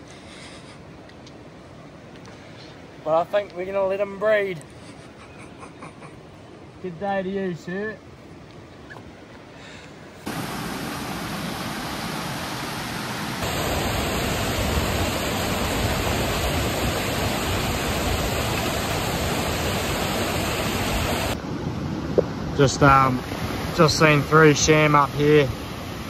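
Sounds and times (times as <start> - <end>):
creek rushing over rocks: 10.2 - 21.4, 22.6 - 26.0.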